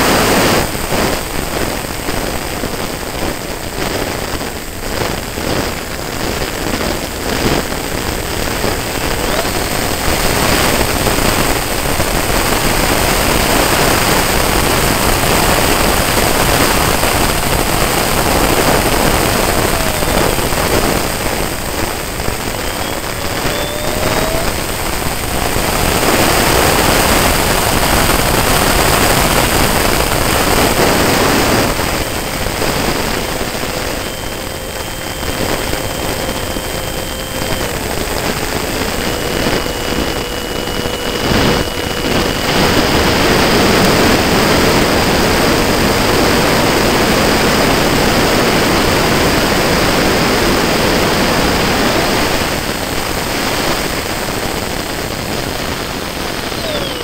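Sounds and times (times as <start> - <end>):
jet engine rushing: 0.0 - 57.0
thin engine whine: 0.0 - 57.0
wind over airframe: 0.0 - 57.0.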